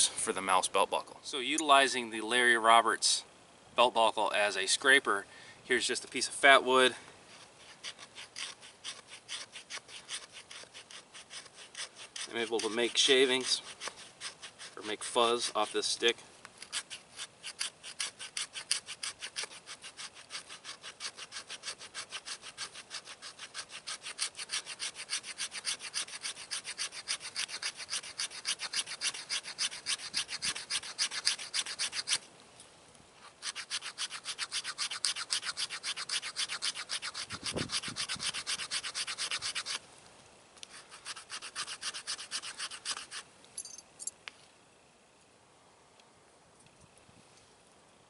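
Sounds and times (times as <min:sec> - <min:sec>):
metal edge scraping wood: 0:06.2 - 0:32.3, 0:33.2 - 0:39.8, 0:40.6 - 0:43.2.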